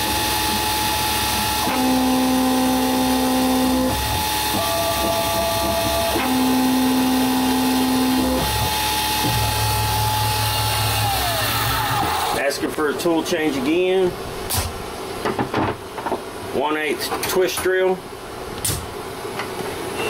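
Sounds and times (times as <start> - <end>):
spindle motor whining: 0.0 - 12.5
drive motors humming: 0.0 - 15.1.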